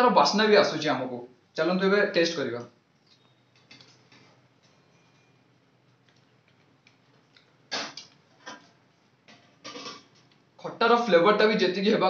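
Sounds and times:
person eating mouth sounds: 6.9s - 8.6s.

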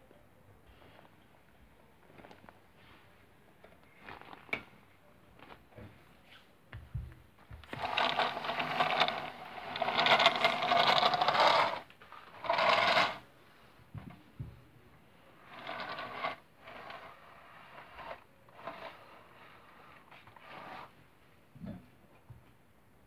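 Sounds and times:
toy train motor whirring: 7.8s - 13.2s, 15.4s - 20.9s.

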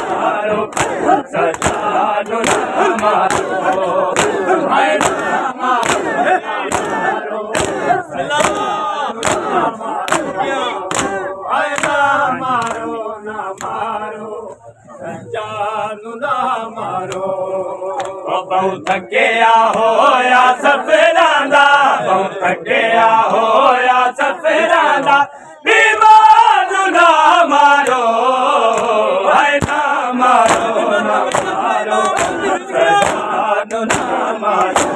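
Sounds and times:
hands slapping chests: 0.0s - 12.0s, 12.6s - 12.9s, 17.9s - 18.2s, 29.6s - 34.9s
men chanting in unison: 0.0s - 34.9s.

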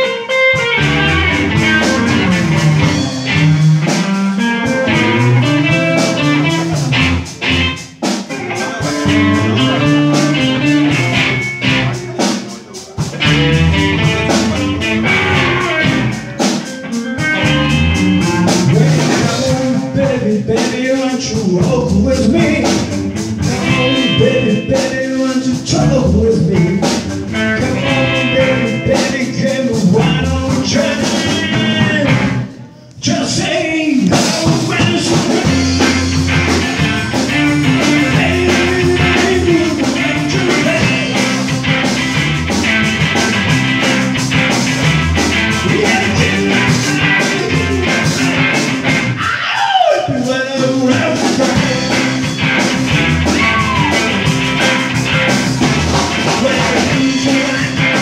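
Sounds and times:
electric bass: 0.0s - 12.3s, 12.9s - 33.2s, 34.0s - 49.4s, 50.2s - 58.0s
electric guitars: 0.0s - 58.0s
drum hits: 0.6s - 21.0s, 34.0s - 49.2s, 51.0s - 58.0s.

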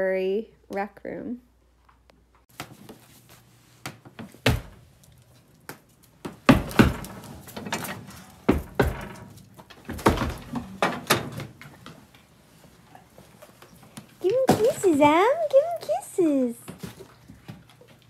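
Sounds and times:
metal knocks from cast-iron stove doors: 6.5s - 11.5s.

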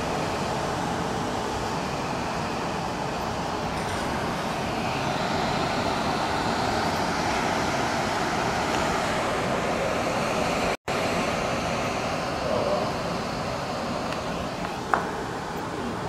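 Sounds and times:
wind and rain through trees: 0.0s - 16.0s.

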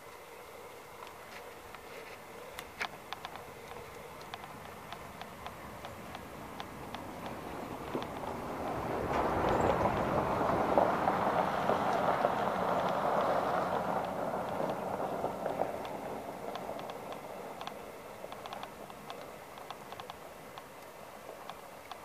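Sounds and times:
hoof steps on soft dirt: 1.0s - 20.6s
steady rushing noise: 1.5s - 22.0s
tack clicking: 2.5s - 8.4s, 15.5s - 22.0s.

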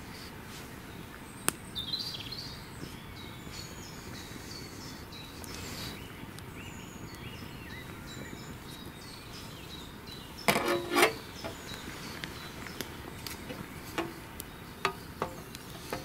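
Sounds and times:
outdoor hiss: 0.0s - 16.0s
metal cooking plate clattering: 10.5s - 11.6s.

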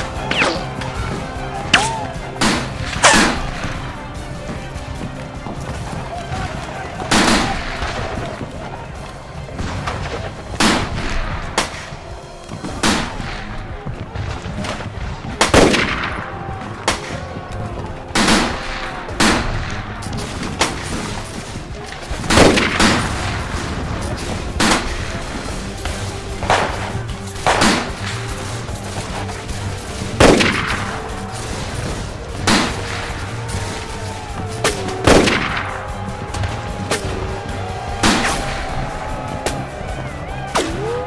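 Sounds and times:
rifle shots echoing: 22.0s - 28.4s, 29.9s - 37.3s.

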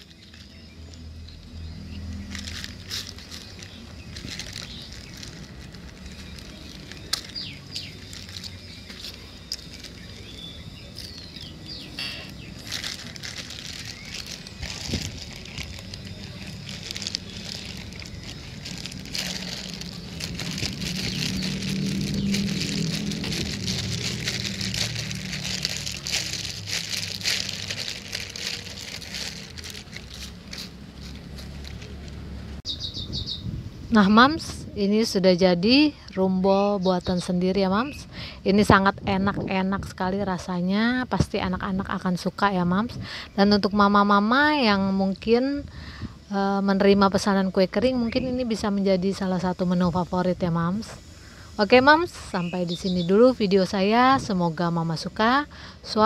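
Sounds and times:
plastic bag rustling: 0.0s - 32.6s.

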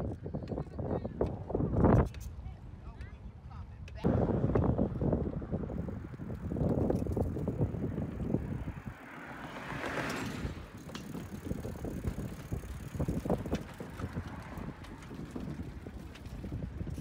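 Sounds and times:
wind buffeting microphone: 0.0s - 17.0s
bicycle tyres rumbling: 4.1s - 17.0s
car passing: 5.9s - 16.4s.

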